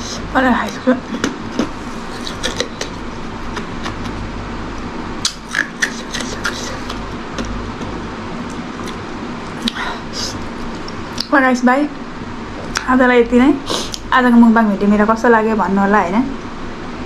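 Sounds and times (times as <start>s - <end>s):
steady background hum: 0.0s - 17.0s
person chewing with mouth clicks: 1.2s - 4.2s, 5.2s - 11.3s.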